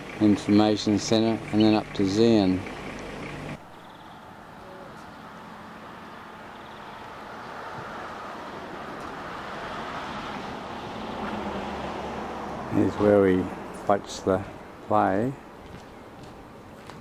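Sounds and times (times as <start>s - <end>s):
outdoor background hiss: 0.0s - 17.0s.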